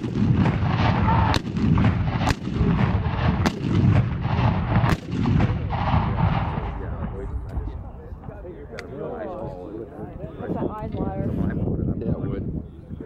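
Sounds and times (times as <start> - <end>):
cannon blasts: 0.0 - 7.4
low rumble of cannon shots: 0.0 - 7.9.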